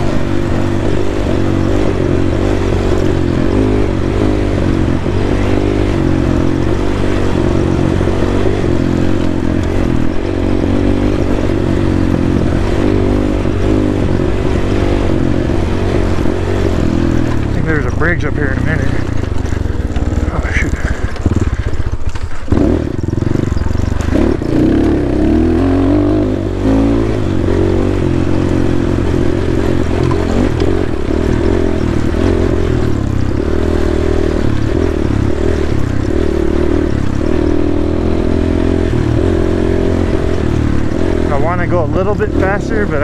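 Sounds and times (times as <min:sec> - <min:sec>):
dirt bike engine revving: 0:00.0 - 0:43.0.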